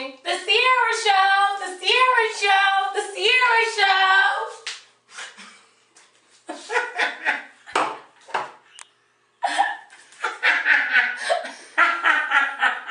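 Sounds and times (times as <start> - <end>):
woman laughing: 6.5 - 7.6, 9.4 - 12.9.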